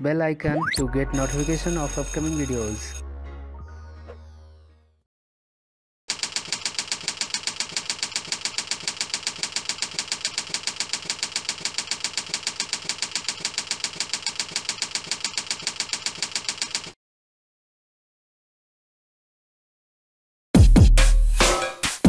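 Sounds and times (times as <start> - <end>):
fast keyboard typing clicks: 1.2 - 3.0, 6.1 - 17.0.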